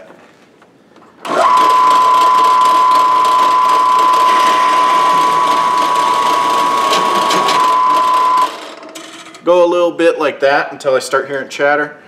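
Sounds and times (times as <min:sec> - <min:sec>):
drill press whine: 0:01.2 - 0:09.4
hole saw cutting steel: 0:01.4 - 0:08.4.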